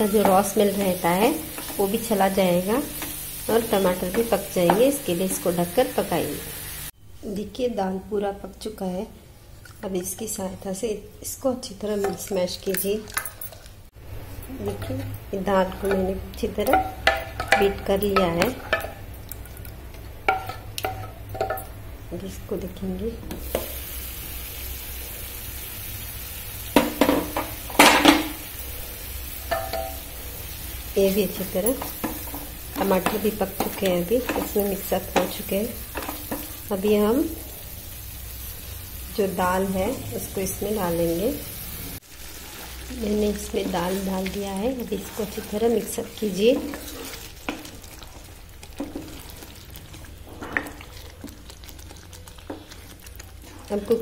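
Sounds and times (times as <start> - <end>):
wooden spatula stirring dal: 0.0 - 5.5, 14.3 - 23.8, 29.5 - 37.4, 42.0 - 54.0
masala sizzling in oil: 0.0 - 8.1, 13.9 - 54.0
wooden spatula scraping pan: 42.4 - 51.4.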